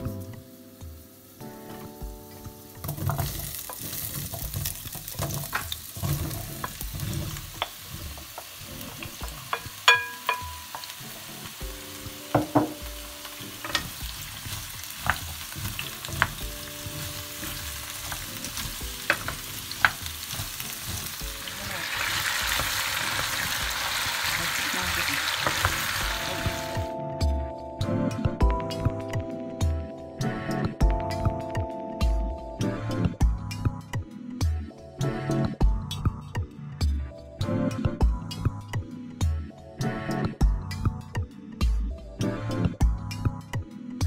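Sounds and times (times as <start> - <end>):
vegetables sizzling in hot oil: 0.0 - 26.9
wooden spoon stirring: 2.8 - 10.8
knocks and clinks against pot: 9.2 - 10.9.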